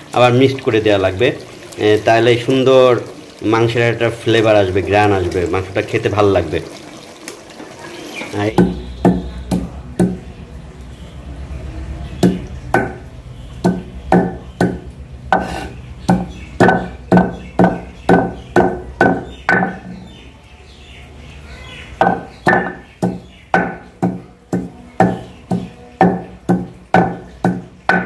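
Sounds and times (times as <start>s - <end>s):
stone pestle pounding on stone: 8.6s - 10.2s, 12.2s - 13.0s, 13.6s - 19.9s, 22.0s - 28.0s.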